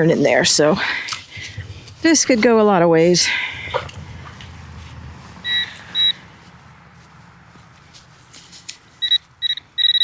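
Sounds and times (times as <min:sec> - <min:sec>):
metal detector short high beeps: 0:05.4 - 0:06.2, 0:09.0 - 0:10.0.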